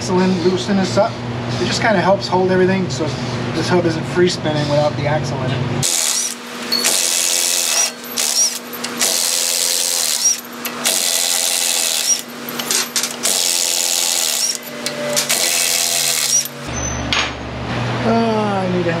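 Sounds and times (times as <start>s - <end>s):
impact wrench spinning bolts: 5.8s - 16.7s.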